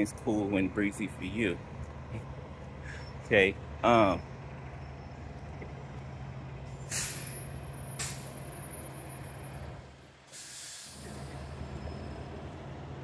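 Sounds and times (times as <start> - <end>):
idling vehicle engine hum: 0.0 - 10.3, 11.0 - 13.0
short bursts of hiss: 10.3 - 11.1.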